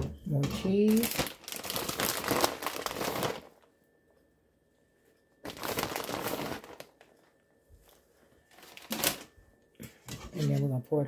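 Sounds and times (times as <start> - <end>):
plastic bag crinkling: 0.3 - 3.7, 5.4 - 9.4.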